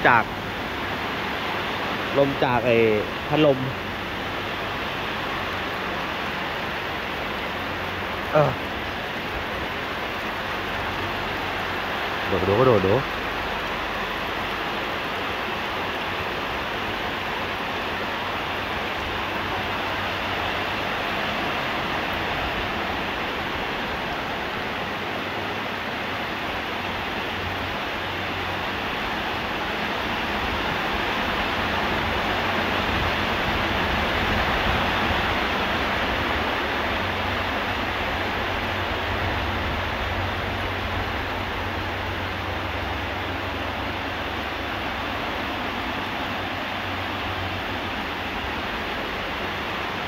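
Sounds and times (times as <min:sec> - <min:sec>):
electric fan blowing: 0:00.0 - 0:50.0
heavy rain: 0:00.0 - 0:50.0.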